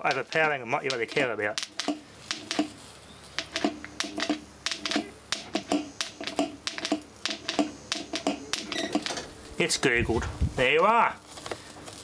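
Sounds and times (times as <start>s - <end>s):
electric motor arcing snaps and buzz: 3.4s - 9.3s.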